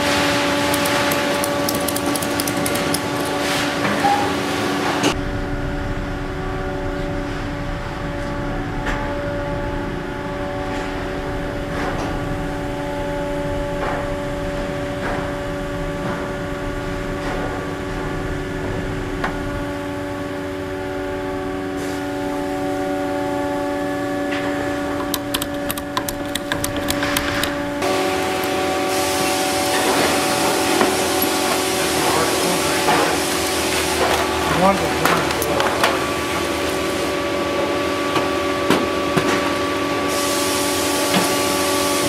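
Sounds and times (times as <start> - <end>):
ratchet strap clicking: 0.7 - 3.4, 25.0 - 27.6
steady drone of held tones: 5.1 - 38.0.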